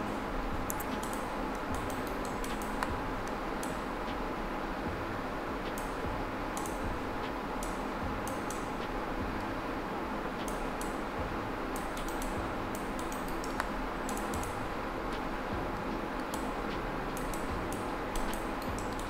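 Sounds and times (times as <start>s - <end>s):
steady background hiss: 0.0s - 19.0s
mouse and keyboard clicks: 0.7s - 2.9s.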